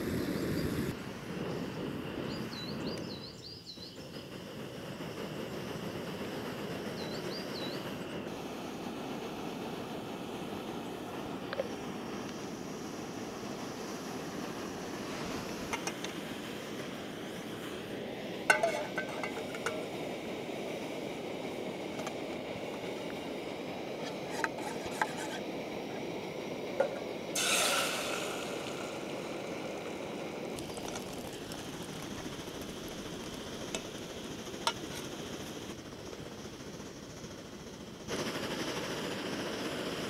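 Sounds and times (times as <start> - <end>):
steady background noise: 0.9 - 40.0
spork scraping in metal pot: 18.5 - 19.8, 24.0 - 25.4
pots and utensils clinking: 18.5 - 19.9, 27.4 - 29.3.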